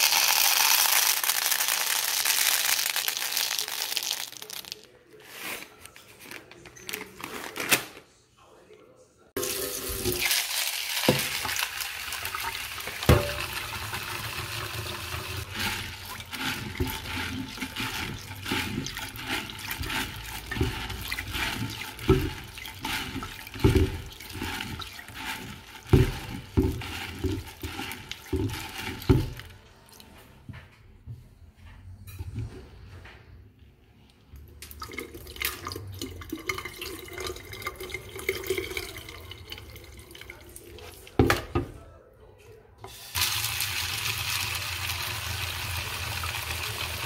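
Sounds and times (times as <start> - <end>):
hand swishing beans in water: 0.0 - 5.8, 15.1 - 29.6
water running into bowl: 9.4 - 30.1, 34.6 - 41.2, 42.9 - 47.0
beans knocking against bowl: 15.4 - 29.5.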